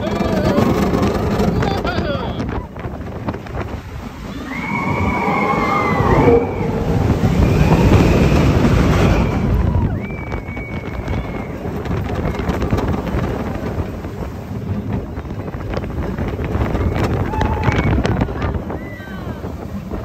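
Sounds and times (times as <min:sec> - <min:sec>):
roller coaster rumbling on track: 0:00.0 - 0:20.0
long high-pitched tones: 0:04.3 - 0:08.6.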